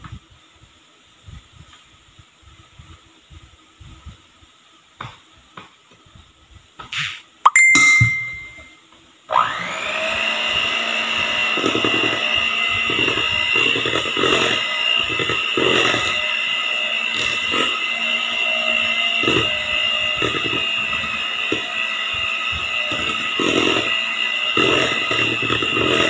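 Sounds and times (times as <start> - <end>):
electric hand mixer whirring: 9.3 - 26.0.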